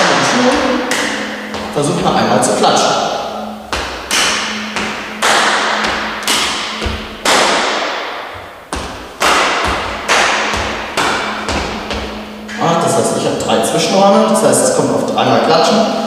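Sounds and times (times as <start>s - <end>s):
hand claps: 0.2s - 1.2s, 3.7s - 8.0s, 9.2s - 12.6s
footsteps on wooden floor: 0.4s - 1.8s, 3.7s - 12.6s.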